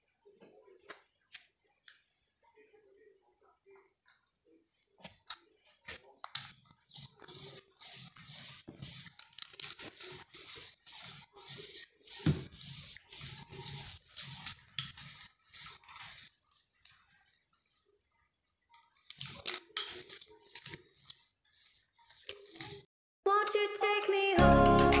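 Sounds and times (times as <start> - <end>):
paint roller rasping: 6.9 - 18.0, 18.8 - 22.9.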